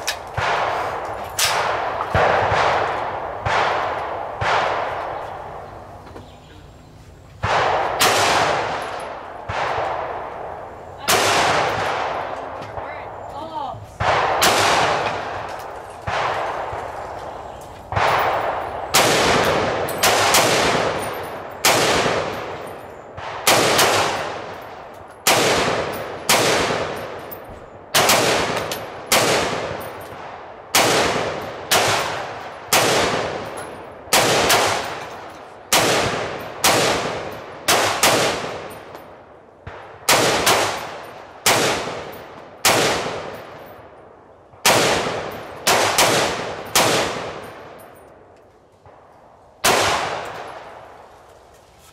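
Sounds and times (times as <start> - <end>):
gunshots with echo: 0.0 - 5.7, 7.4 - 13.2, 14.0 - 27.3, 27.9 - 43.9, 44.5 - 48.0, 49.6 - 50.9.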